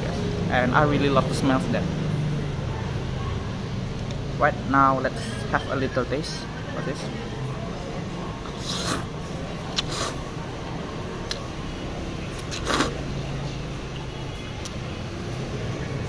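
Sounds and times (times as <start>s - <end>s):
person slurping noodles: 8.4s - 10.3s, 12.4s - 13.0s.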